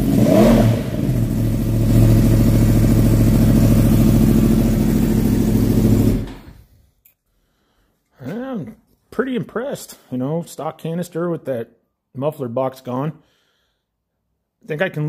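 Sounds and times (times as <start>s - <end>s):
motorcycle engine revving: 0.0s - 6.6s.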